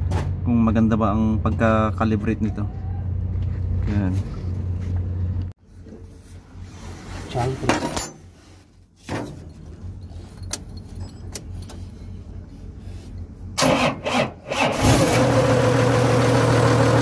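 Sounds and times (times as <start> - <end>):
diesel engine starting and idling: 13.2 - 17.0.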